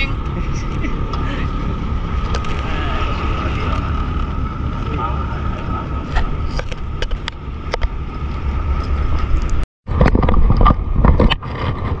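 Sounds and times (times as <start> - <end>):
boat engine rumbling: 0.0 - 12.0.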